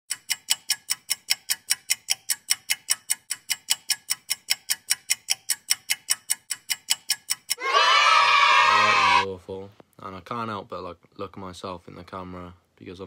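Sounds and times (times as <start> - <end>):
rapid electronic ticking: 0.1 - 7.6.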